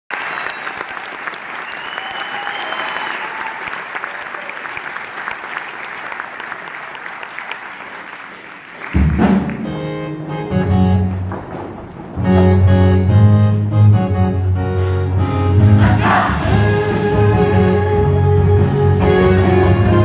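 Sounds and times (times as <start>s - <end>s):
high-pitched cheer: 0.1s - 5.0s
audience applauding and cheering: 0.1s - 9.8s.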